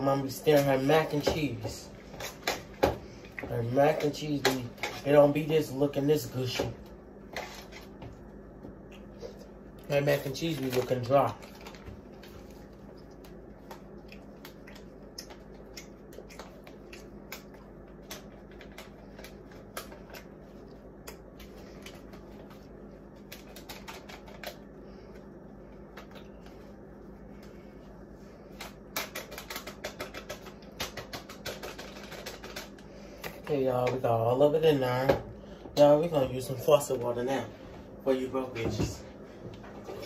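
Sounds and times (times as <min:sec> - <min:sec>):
low steady hum: 0:00.0 - 0:40.0
paper packet clicks and taps: 0:28.6 - 0:32.8.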